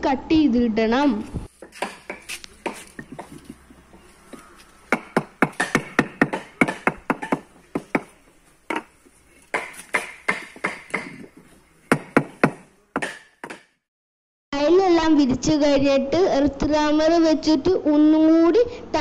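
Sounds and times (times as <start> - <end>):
wooden mallet striking paving blocks: 1.6 - 3.6, 4.3 - 13.8.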